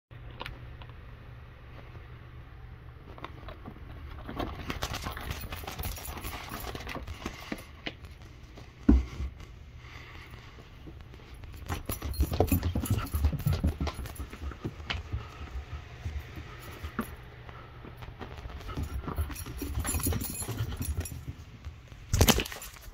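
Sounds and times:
cat scuffling and tapping: 3.0s - 22.9s.

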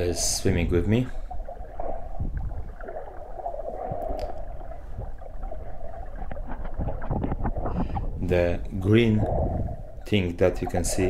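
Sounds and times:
muffled underwater rushing: 0.0s - 11.0s
small clicks and gurgles: 1.1s - 8.2s.

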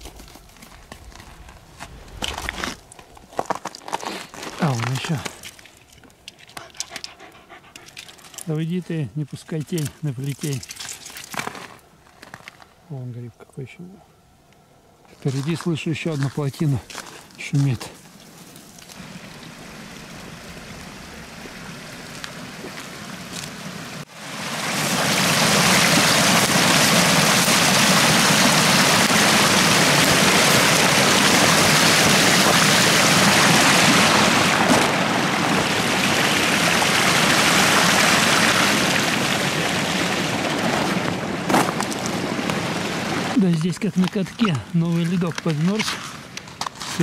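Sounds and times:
water rushing over a dam: 19.0s - 44.6s.

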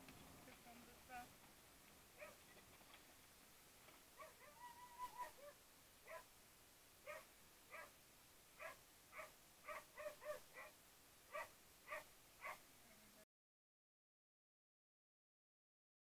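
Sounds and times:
dog barking: 2.2s - 2.4s, 4.2s - 6.3s, 7.0s - 8.0s, 8.6s - 12.6s.

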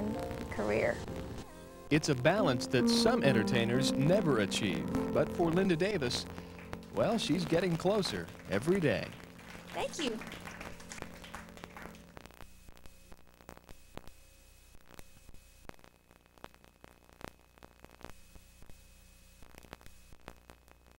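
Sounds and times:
faint electrical hum: 0.0s - 20.9s
sharp clicks and crackle: 19.4s - 20.9s.

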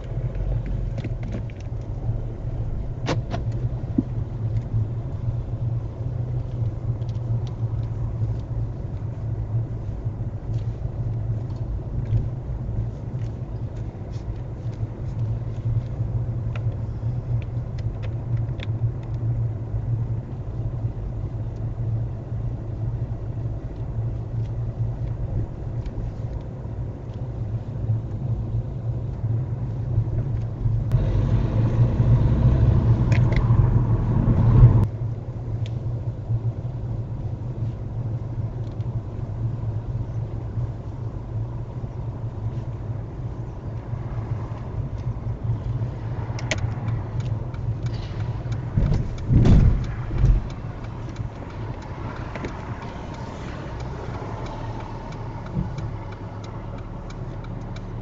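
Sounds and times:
car engine and road noise: 0.0s - 58.0s.

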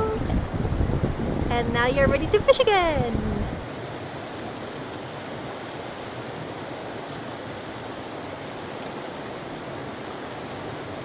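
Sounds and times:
stream rushing over rocks: 2.4s - 11.0s.

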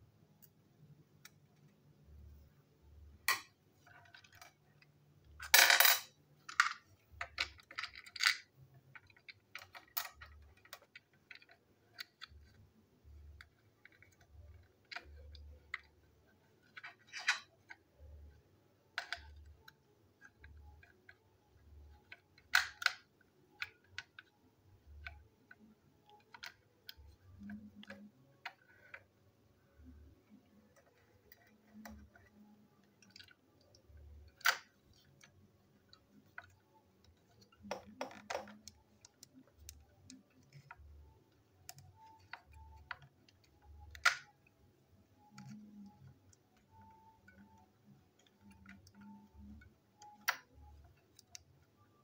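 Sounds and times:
plastic toy clicks and rattles: 3.3s - 12.6s, 13.3s - 29.1s, 30.6s - 44.6s.

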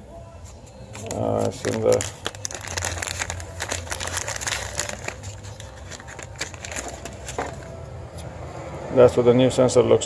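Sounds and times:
plastic bag crinkling: 1.0s - 7.7s.

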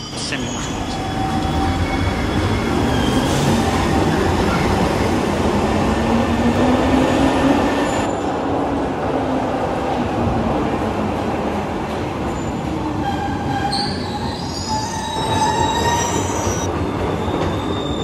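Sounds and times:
train wheels on rails: 9.8s - 18.0s.

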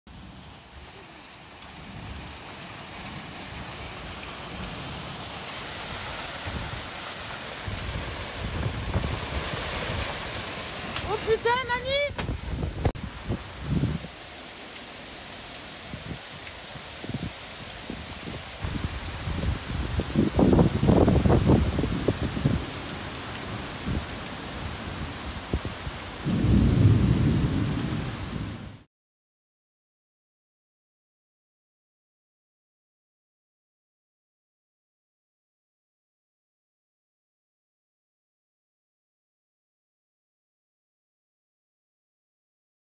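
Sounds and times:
torrential rain on wooden deck: 0.1s - 28.9s
thunder rumbling: 3.0s - 14.1s, 17.9s - 28.8s.

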